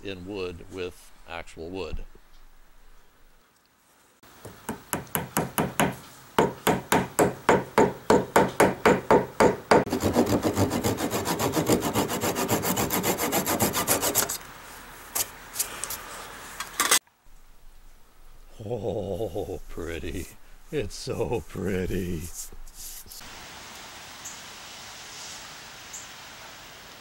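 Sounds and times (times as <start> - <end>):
handsaw cutting wood: 9.8 - 14.4.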